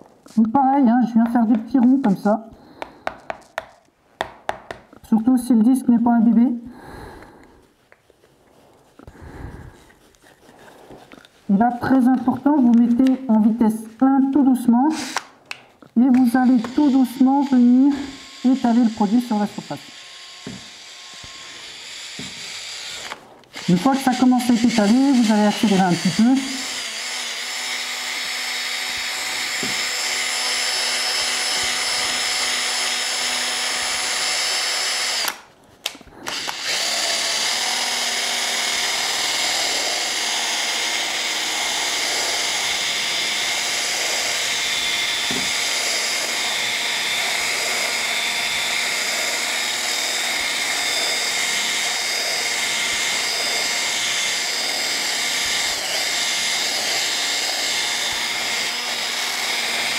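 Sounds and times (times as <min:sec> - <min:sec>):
cordless drill motor whine: 0:14.9 - 0:15.3, 0:16.4 - 0:35.4, 0:36.2 - 0:59.9.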